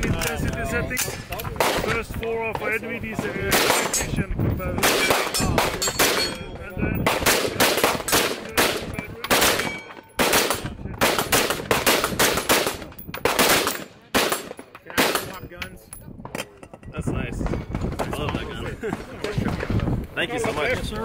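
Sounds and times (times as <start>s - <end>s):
rifle firing rapidly: 3.4s - 4.0s, 4.8s - 6.3s, 7.0s - 15.4s.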